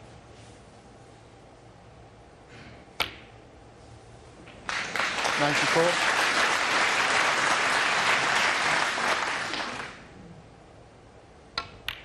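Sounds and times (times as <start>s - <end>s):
cue striking ball: 3.0s - 3.4s
snooker balls clicking: 3.0s - 3.4s, 11.5s - 12.0s
audience applauding: 4.6s - 10.1s.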